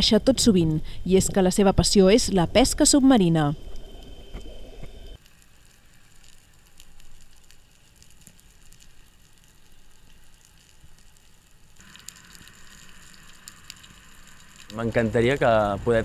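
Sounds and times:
low underwater hiss: 0:02.6 - 0:16.0
sharp crackling clicks: 0:03.7 - 0:15.2.

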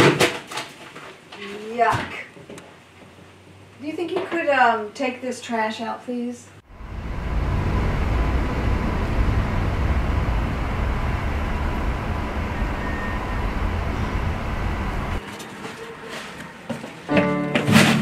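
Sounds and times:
loud low rumbling: 0:06.6 - 0:15.2
faint thin tone: 0:07.2 - 0:15.2.

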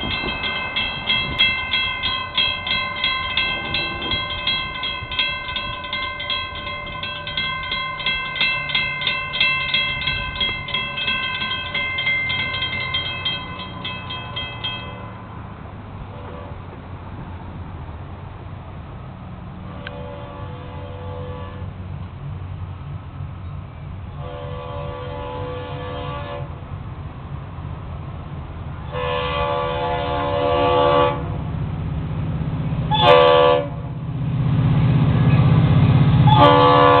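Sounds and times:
railroad crossing bell ringing: 0:00.0 - 0:15.8, 0:36.2 - 0:37.0.

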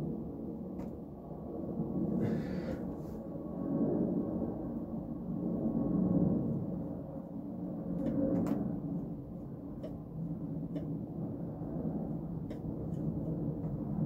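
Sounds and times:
low steady hum: 0:00.0 - 0:14.0
light clicks and taps: 0:09.8 - 0:10.0.

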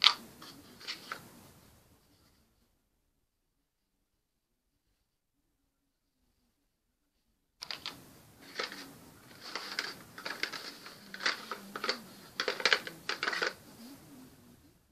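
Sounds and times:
cardboard cards clicking and tapping: 0:07.6 - 0:13.6.

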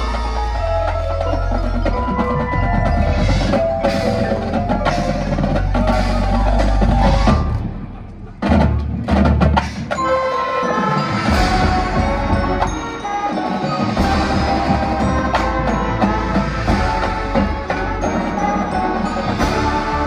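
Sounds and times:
mallet percussion ringing: 0:00.0 - 0:07.5, 0:10.0 - 0:20.0
marching band playing: 0:00.0 - 0:20.0
loud accented band hits: 0:08.4 - 0:20.0.

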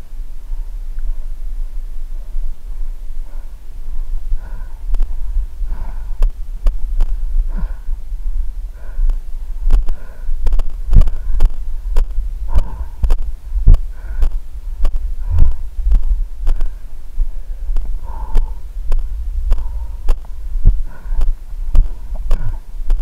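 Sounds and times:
heavy breathing: 0:00.1 - 0:23.0
footsteps on rough ground: 0:09.1 - 0:23.0.

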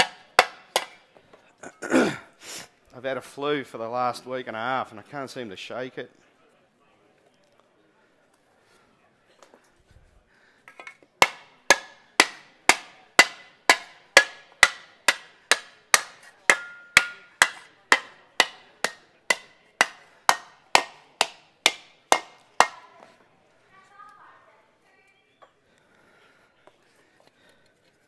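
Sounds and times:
mallet beating aluminium sheet: 0:11.2 - 0:22.9.

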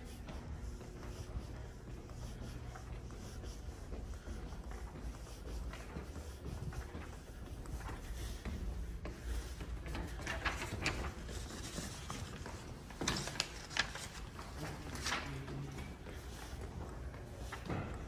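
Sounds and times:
footsteps on hard stairs: 0:00.0 - 0:10.8.

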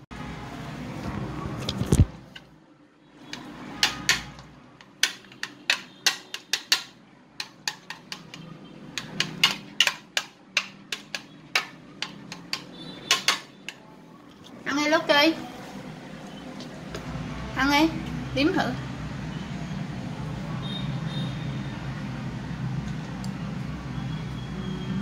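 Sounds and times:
irregular sharp clicks and taps: 0:03.3 - 0:13.8.

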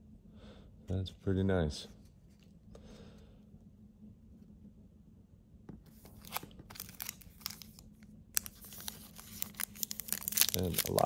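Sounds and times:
wrapper crinkling and tearing: 0:05.9 - 0:11.0.

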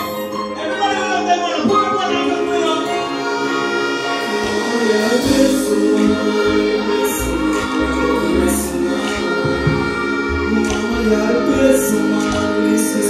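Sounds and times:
loud live concert music: 0:00.0 - 0:13.0
heavy bass beat: 0:05.2 - 0:12.4.

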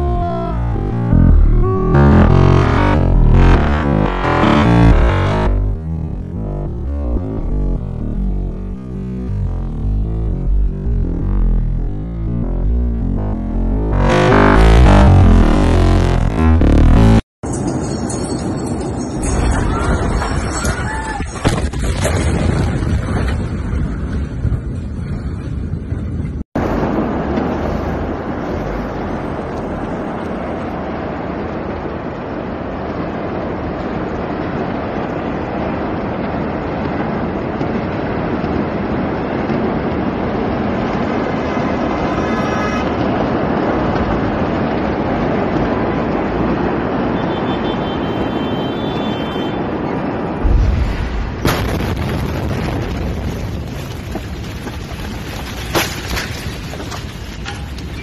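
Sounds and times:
explosion low boom: 0:00.0 - 0:17.2, 0:50.0 - 0:55.0
steady rushing noise: 0:00.0 - 0:17.2, 0:26.2 - 0:48.7.

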